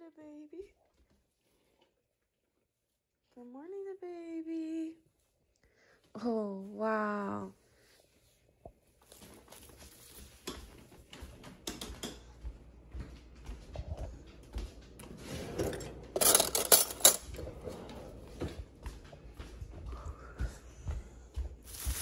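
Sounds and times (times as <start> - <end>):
kitchen things clinking: 15.4 - 17.6.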